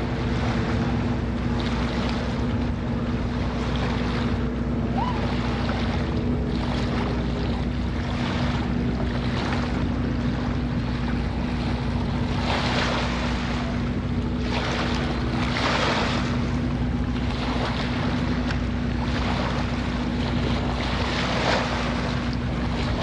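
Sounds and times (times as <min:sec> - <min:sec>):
lake waves washing at shore: 0:00.0 - 0:23.0
low hum: 0:00.0 - 0:23.0
wind buffeting microphone: 0:00.0 - 0:23.0.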